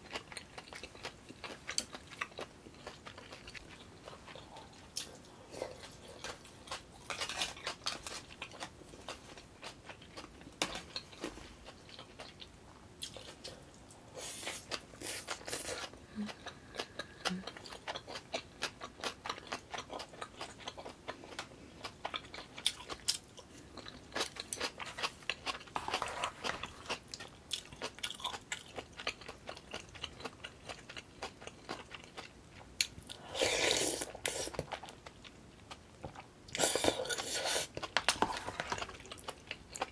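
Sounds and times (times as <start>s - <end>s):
wet chewing and mouth smacking: 0.0s - 13.9s, 14.5s - 39.9s
slurping soup: 33.2s - 34.6s, 36.6s - 38.7s.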